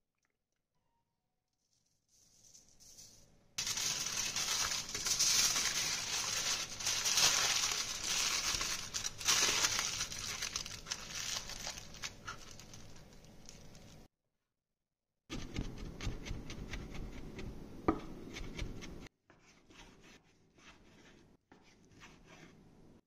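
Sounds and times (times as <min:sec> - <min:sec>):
aluminium foil crinkling: 0:01.6 - 0:14.1.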